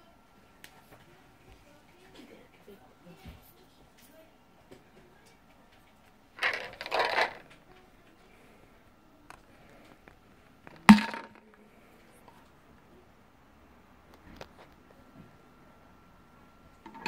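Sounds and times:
plastic cap snapping: 10.7s - 11.3s.

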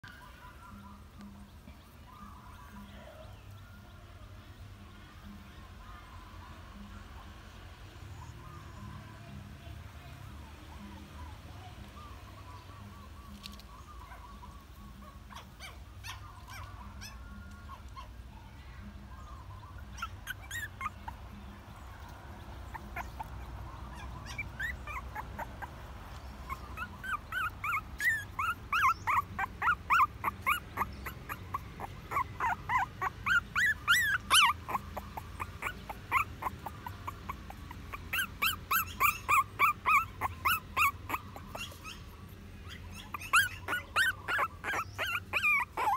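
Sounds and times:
puppy whimpering: 13.4s - 18.2s, 19.6s - 22.0s, 22.6s - 45.9s.

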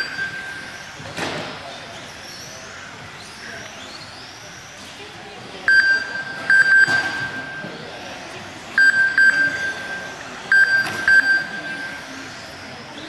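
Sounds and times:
high electronic beeps: 0.0s - 1.0s, 5.6s - 12.4s.

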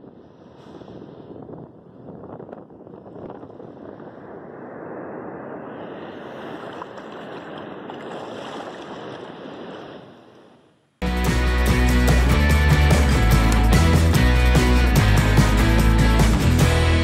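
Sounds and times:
surf washing up a beach: 5.8s - 10.5s
loud music: 11.0s - 17.0s.

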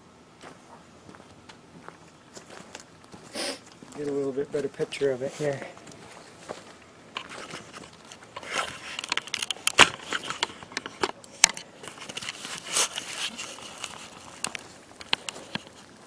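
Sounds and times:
footsteps crunching through dry leaves: 1.8s - 8.9s.

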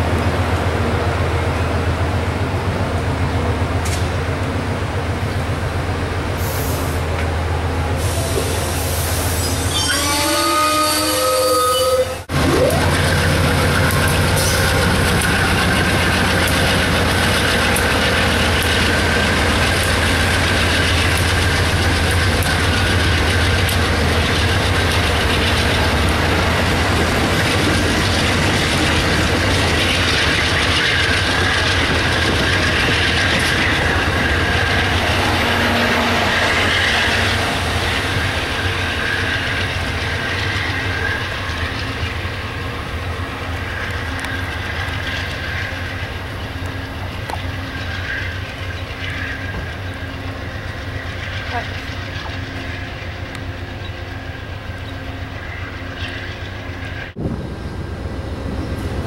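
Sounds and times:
train wheels clicking on rails: 0.0s - 9.6s, 12.6s - 59.0s
locomotive engine drone: 0.0s - 59.0s
thin wheel squeal: 9.2s - 12.2s.

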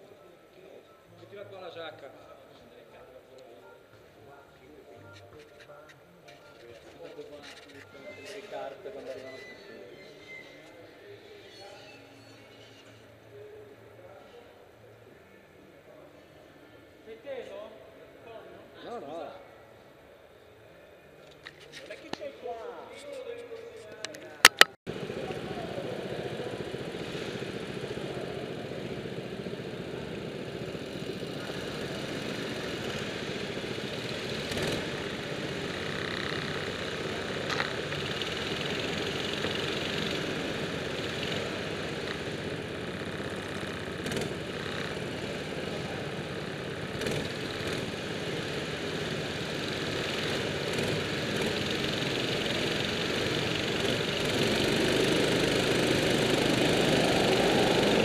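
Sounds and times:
go-kart engines idling: 24.9s - 58.0s.

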